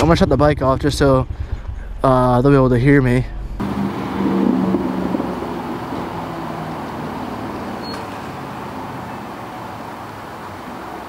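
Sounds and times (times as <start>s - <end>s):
vehicle engine running: 3.4s - 11.0s
road traffic noise: 3.6s - 11.0s
high chirp: 4.9s - 9.5s.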